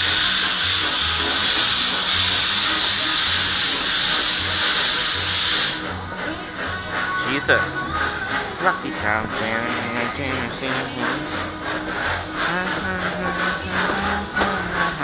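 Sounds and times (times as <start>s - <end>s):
locomotive steam hissing: 0.0s - 15.0s.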